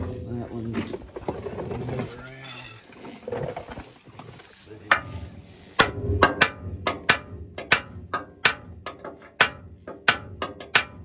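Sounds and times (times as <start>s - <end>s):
hammer striking metal: 4.9s - 11.0s.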